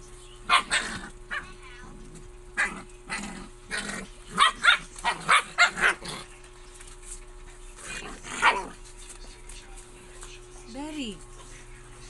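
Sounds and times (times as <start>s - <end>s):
puppy barking: 0.4s - 1.8s, 2.6s - 2.9s, 4.3s - 6.3s, 8.2s - 8.8s.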